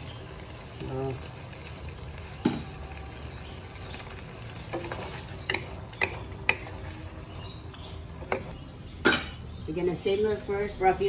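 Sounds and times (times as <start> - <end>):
spatulas stirring food in wok: 3.1 - 8.6.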